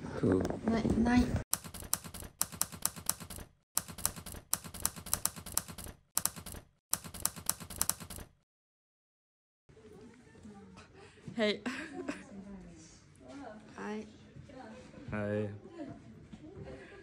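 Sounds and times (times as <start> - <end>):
typewriter key clacks: 1.5 - 8.3.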